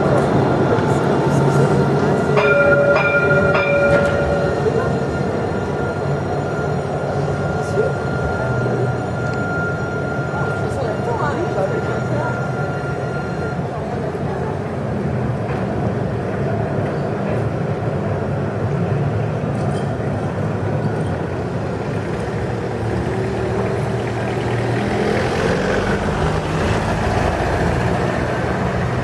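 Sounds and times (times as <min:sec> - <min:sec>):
tram humming: 0:00.0 - 0:29.0.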